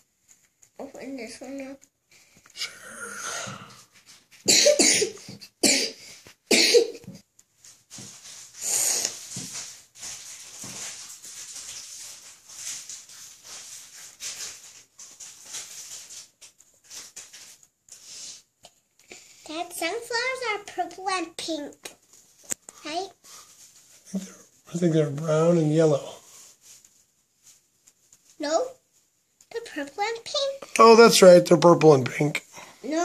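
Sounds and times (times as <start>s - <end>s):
breathy noises: 2.2s - 4.1s
person coughing: 4.5s - 7.1s.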